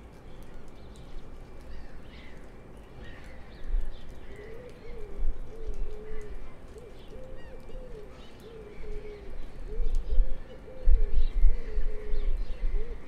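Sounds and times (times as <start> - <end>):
small birds chirping: 0.1 - 13.0
low wavering cooing call: 4.3 - 13.0.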